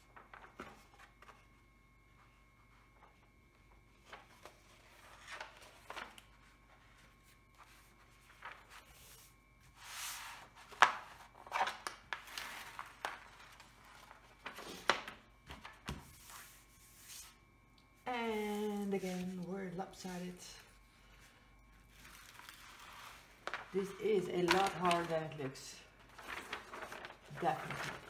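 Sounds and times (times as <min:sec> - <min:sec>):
paper crackle: 0:00.0 - 0:17.4, 0:20.7 - 0:28.0
paper rustling and sliding: 0:03.9 - 0:17.4, 0:21.2 - 0:25.4, 0:26.0 - 0:28.0.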